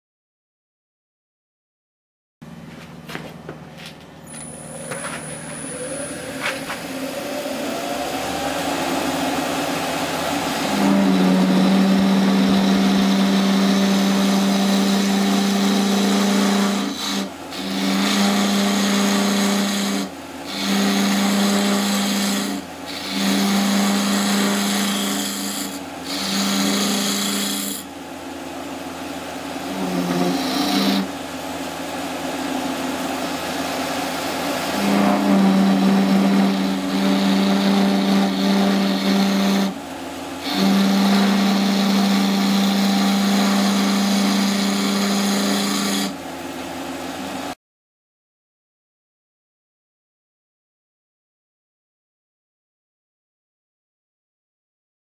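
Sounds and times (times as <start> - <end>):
wood lathe humming: 4.2 - 47.6
hollowing tool scraping wood: 4.3 - 28.0, 29.5 - 46.3.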